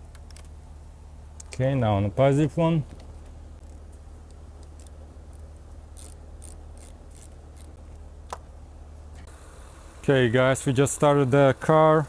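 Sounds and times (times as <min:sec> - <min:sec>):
socket ratchet clicking: 0:06.0 - 0:07.8.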